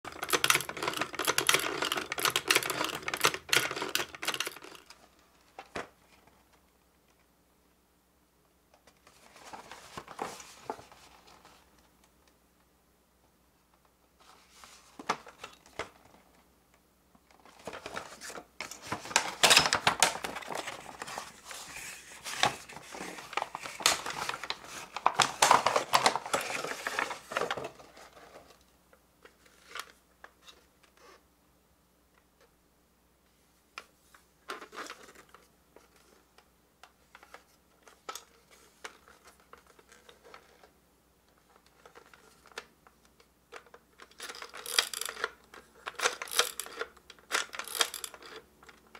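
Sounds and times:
plastic toy clicks and knocks: 0.1 - 4.9, 43.6 - 48.8
cardboard packaging crinkling: 17.4 - 28.5.

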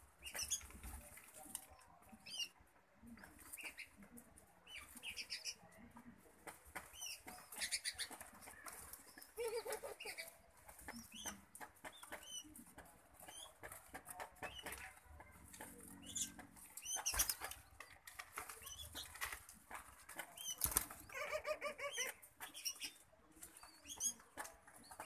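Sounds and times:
wings fluttering and rustling: 0.0 - 25.0
young dove squeaking: 6.9 - 8.3, 9.0 - 13.7, 20.3 - 23.0.

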